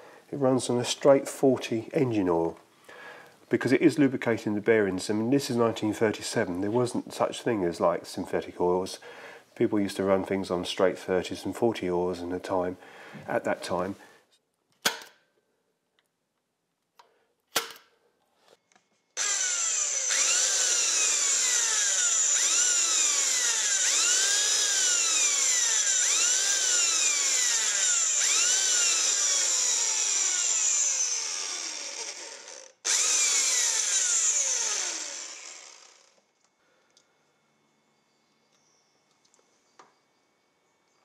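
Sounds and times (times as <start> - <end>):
electric drill whining: 19.2 - 36.3.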